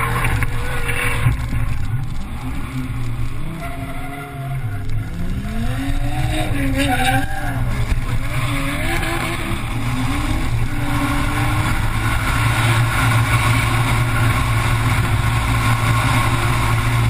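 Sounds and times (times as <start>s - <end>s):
car engine running hard: 0.0s - 17.0s
tyre and wind noise: 0.0s - 17.0s.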